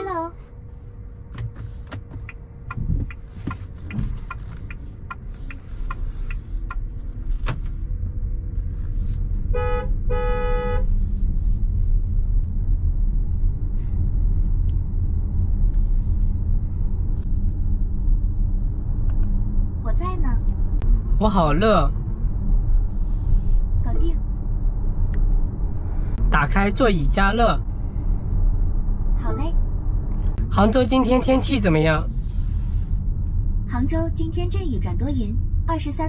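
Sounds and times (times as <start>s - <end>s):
car road rumble: 0.0s - 36.0s
car horn toots: 9.5s - 10.9s.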